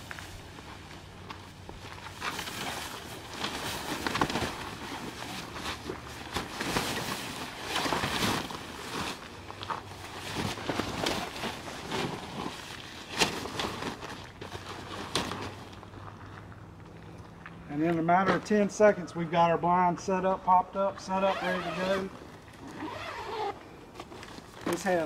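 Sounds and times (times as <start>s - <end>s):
fabric rustling and flapping: 0.0s - 15.9s.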